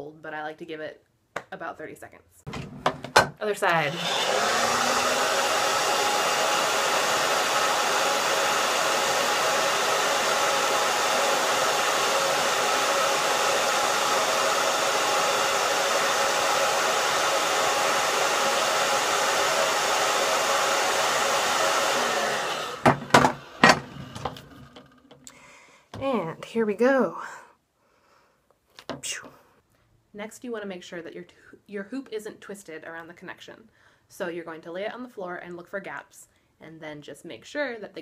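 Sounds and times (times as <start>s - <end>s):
hair dryer blowing: 3.6s - 25.4s.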